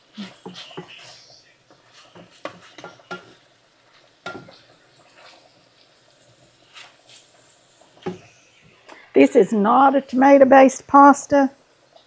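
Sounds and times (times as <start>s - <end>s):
spoon scraping a skillet: 0.0s - 9.0s
faint frying: 0.0s - 12.0s.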